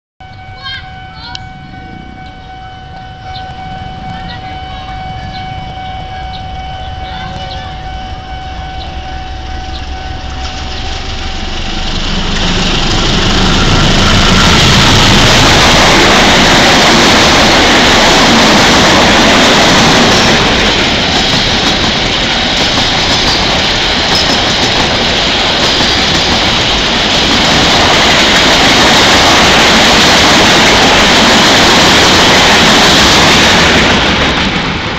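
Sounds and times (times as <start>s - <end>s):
train horn: 0.2s - 12.0s
locomotive passing: 0.2s - 34.9s
coach wheels rushing on rails: 1.3s - 34.9s.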